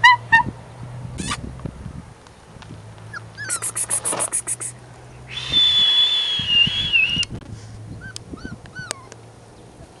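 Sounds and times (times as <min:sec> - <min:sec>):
puppy whimpers: 0:03.1 - 0:04.7, 0:08.0 - 0:09.2
puppies whining: 0:03.1 - 0:04.8, 0:08.0 - 0:09.2.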